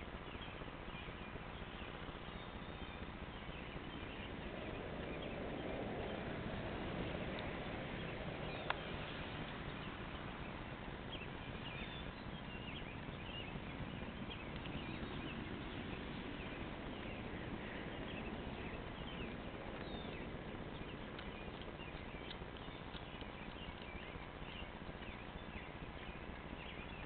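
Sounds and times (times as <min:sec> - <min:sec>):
cat chewing and crunching: 0:00.1 - 0:27.0.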